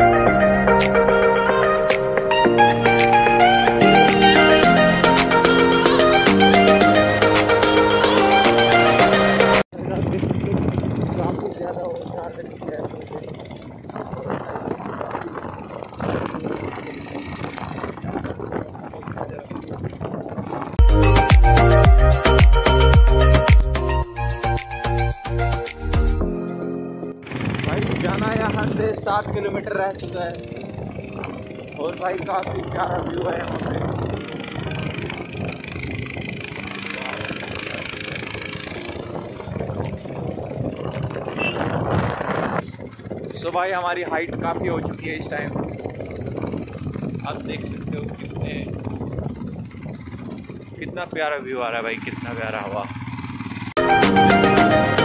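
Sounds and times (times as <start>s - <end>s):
motorcycle engine running: 9.7s - 20.9s, 27.2s - 55.0s.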